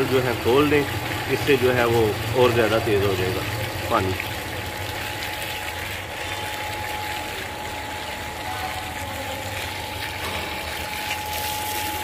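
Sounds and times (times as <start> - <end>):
water gushing from drain pipe: 0.0 - 12.0
water splashing on concrete: 0.0 - 12.0.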